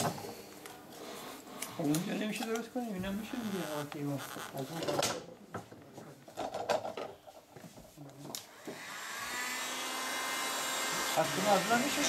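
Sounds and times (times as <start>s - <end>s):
electric motor whine: 8.5s - 12.0s.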